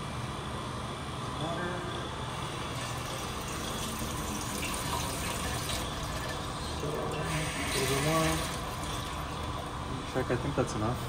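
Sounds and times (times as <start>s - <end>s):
tap water running into metal tank: 2.6s - 10.0s.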